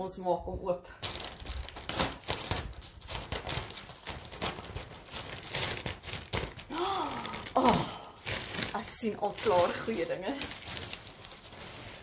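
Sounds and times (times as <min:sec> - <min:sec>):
plastic bag rustling: 0:00.9 - 0:12.0.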